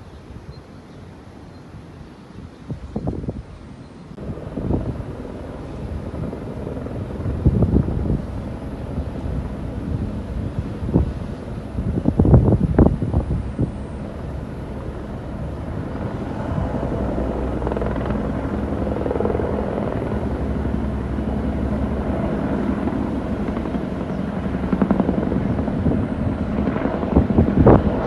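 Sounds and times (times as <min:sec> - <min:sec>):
wind gusts on microphone: 0:00.0 - 0:28.0
helicopter rotor chop: 0:04.2 - 0:28.0.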